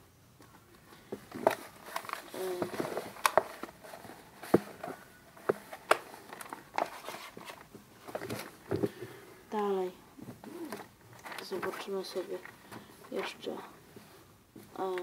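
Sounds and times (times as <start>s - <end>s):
magazine paper rustling: 1.0s - 8.9s, 10.6s - 13.6s.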